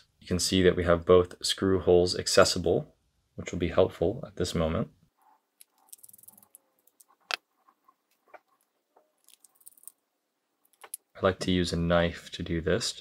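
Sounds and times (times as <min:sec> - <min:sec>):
small metal clicks: 0:08.1 - 0:10.0, 0:10.6 - 0:11.1.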